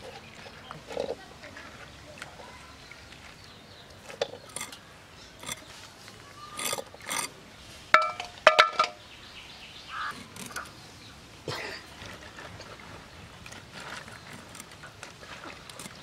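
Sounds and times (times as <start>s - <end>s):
metal cooking bowl clinking: 8.0s - 9.0s.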